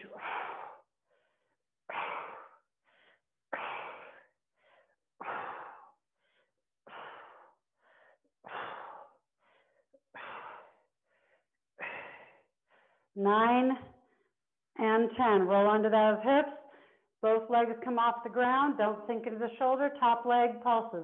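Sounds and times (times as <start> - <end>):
woman breathing hard: 0.0 - 13.2.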